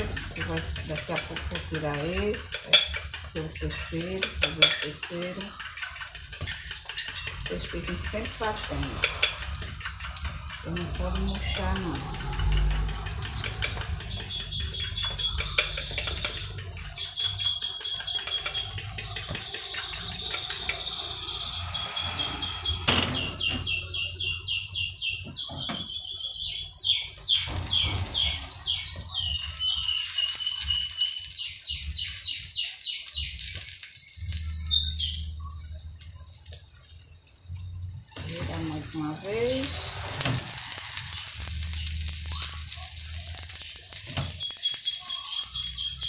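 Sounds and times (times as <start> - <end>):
songbird singing trills: 11.0 - 12.6, 13.2 - 35.6, 44.3 - 46.0.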